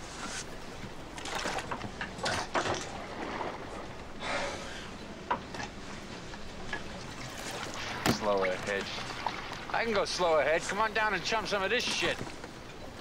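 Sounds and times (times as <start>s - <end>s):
boat engine rumble: 0.0s - 13.0s.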